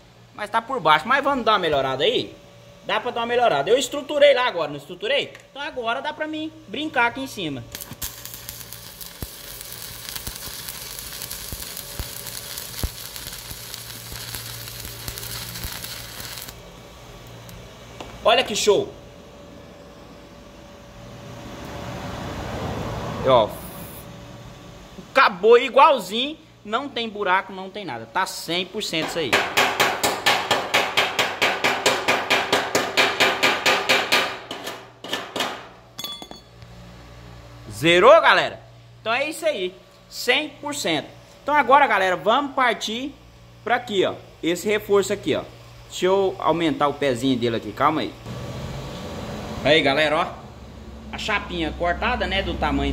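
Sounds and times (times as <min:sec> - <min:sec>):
arc welding crackling sizzle: 0:06.4 - 0:18.9, 0:39.0 - 0:50.1
welding arc pops: 0:07.7 - 0:16.6, 0:17.2 - 0:18.2
hammer striking steel: 0:29.0 - 0:36.6.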